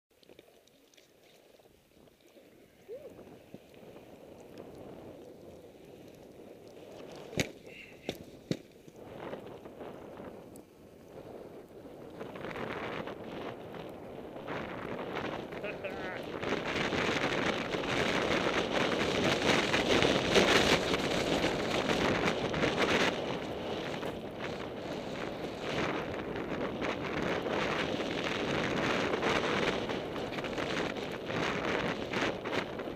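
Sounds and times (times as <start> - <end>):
skis rustling in snow: 0.2 - 11.5
wind buffeting microphone: 1.6 - 32.9.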